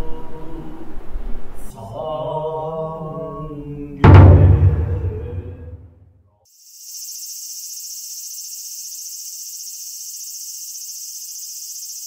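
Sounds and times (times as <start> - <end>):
cicadas buzzing: 6.5 - 12.0.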